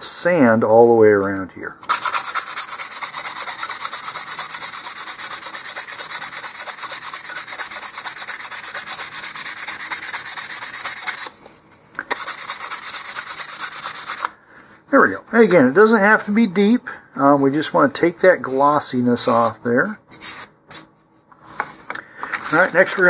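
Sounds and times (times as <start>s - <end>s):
sandpaper rubbing on tube: 1.9s - 11.3s, 12.1s - 14.3s, 22.5s - 23.0s.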